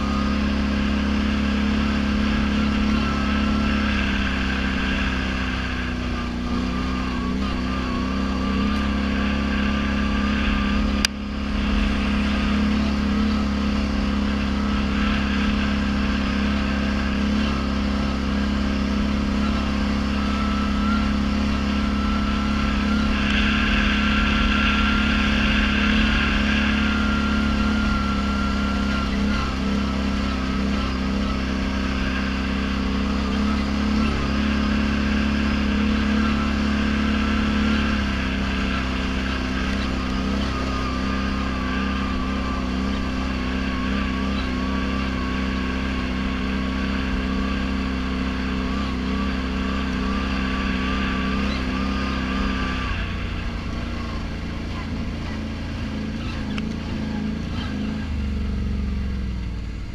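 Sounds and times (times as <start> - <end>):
atv engine running: 0.0 - 59.9
high-pitched whine: 0.0 - 59.9.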